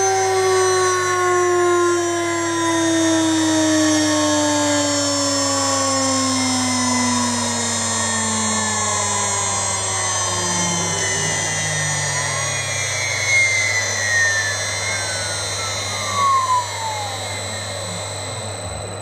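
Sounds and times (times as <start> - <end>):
low hum: 0.0 - 19.0
spindle whine falling in pitch: 0.0 - 19.0.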